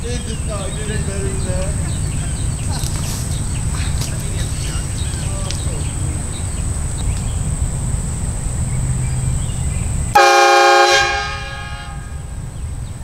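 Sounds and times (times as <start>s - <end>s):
train horn blast: 10.2s - 12.5s.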